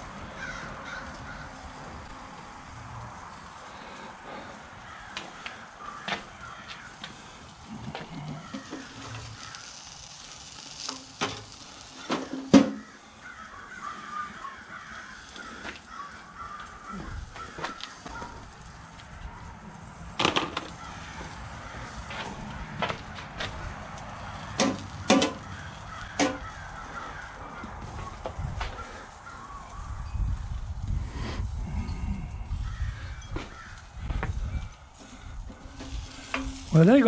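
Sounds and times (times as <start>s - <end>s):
crows cawing: 0.0s - 2.6s, 3.3s - 30.4s, 31.1s - 37.0s
grill lid clanking: 7.9s - 13.0s, 24.5s - 26.5s, 35.6s - 36.8s.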